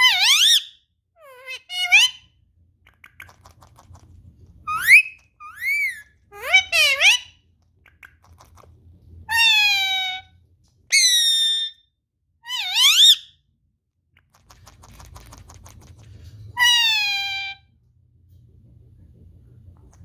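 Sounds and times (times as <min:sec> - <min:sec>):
parakeet high-pitched calls: 0:00.0 - 0:02.3, 0:04.7 - 0:07.4, 0:09.3 - 0:10.3, 0:10.9 - 0:13.4, 0:16.6 - 0:17.7.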